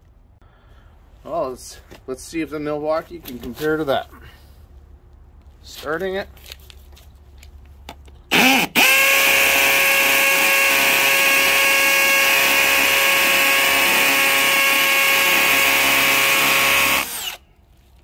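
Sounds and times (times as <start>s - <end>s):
hammer drill boring into concrete: 8.3s - 17.4s.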